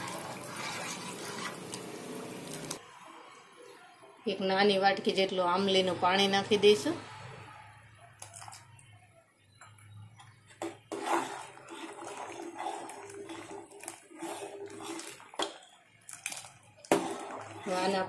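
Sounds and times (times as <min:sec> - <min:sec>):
ladle stirring and clinking in pot: 0:00.0 - 0:02.8, 0:10.3 - 0:18.0
liquid pouring into a pot: 0:00.0 - 0:02.8, 0:10.9 - 0:18.0.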